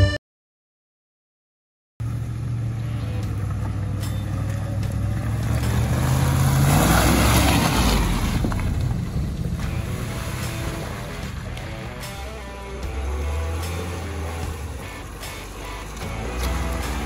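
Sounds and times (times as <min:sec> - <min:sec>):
off-road vehicle engine under load: 0:02.0 - 0:17.0
rushing noise: 0:05.6 - 0:17.0.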